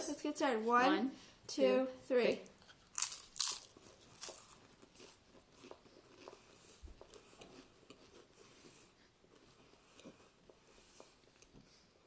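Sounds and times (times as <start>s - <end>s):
crackers crunching: 2.6s - 8.3s.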